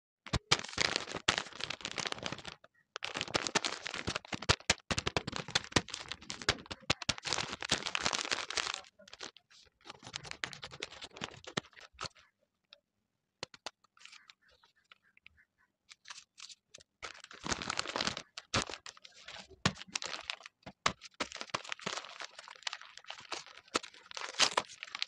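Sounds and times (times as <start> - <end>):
paper crinkling and rustling: 0.3 - 12.3, 15.9 - 25.0.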